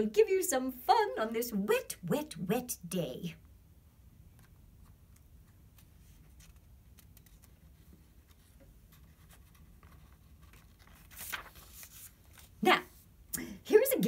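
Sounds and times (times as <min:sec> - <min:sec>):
book page turning: 0:04.4 - 0:13.1.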